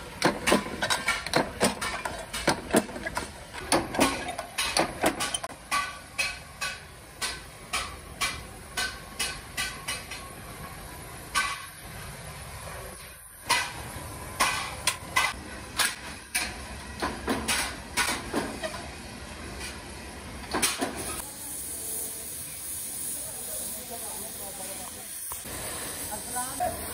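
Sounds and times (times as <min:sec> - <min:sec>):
gas torch hissing: 0:20.8 - 0:26.9.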